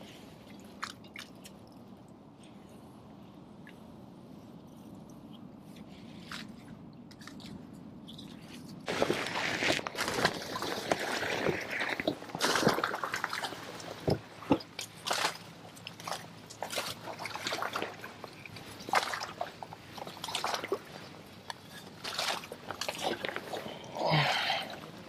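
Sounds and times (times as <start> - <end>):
leaves brushing past: 8.8 - 14.1
paddle splashing water: 8.9 - 23.9.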